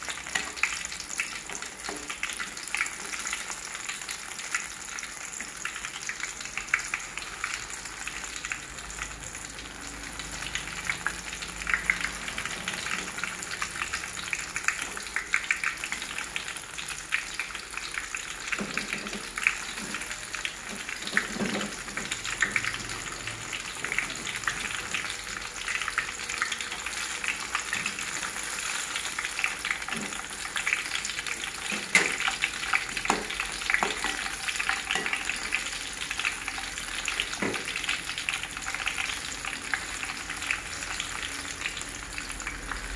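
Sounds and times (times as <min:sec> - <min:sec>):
fritters sizzling in hot oil: 0:00.0 - 0:42.9.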